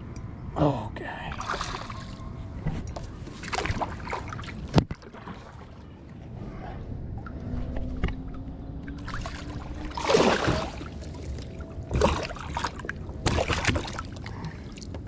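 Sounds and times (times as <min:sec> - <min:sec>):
water splashing: 0:01.3 - 0:02.3, 0:03.2 - 0:06.3, 0:07.5 - 0:15.0.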